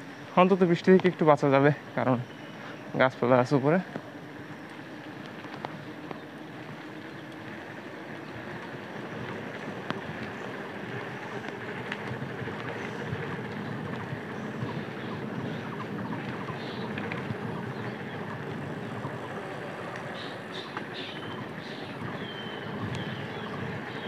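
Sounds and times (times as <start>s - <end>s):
small ticks: 3.9s - 17.7s
wind on microphone: 5.2s - 24.0s.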